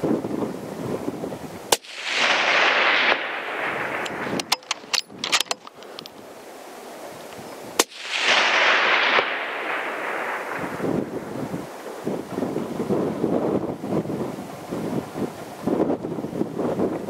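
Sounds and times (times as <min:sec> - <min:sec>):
rifle shot with echo: 0:01.7 - 0:05.6, 0:07.8 - 0:12.3
rifle bolt clicks: 0:03.9 - 0:06.2.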